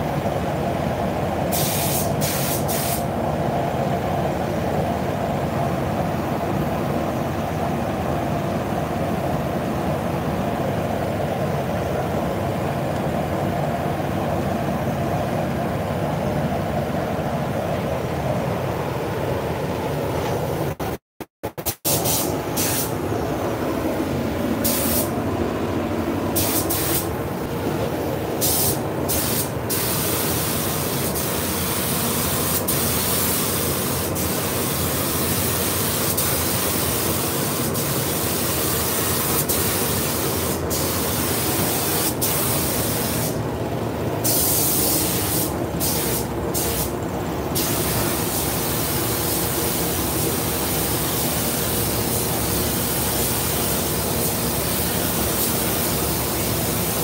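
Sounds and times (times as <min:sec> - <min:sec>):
paint spray gun hissing: 0:01.5 - 0:03.1, 0:21.6 - 0:23.0, 0:24.6 - 0:25.2, 0:26.3 - 0:27.1, 0:28.4 - 0:43.4, 0:44.2 - 0:57.0.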